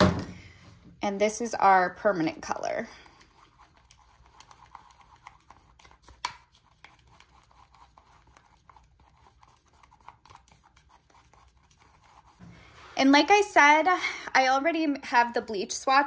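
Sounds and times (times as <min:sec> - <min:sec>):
brush scraping plastic bowl: 0:02.4 - 0:13.4.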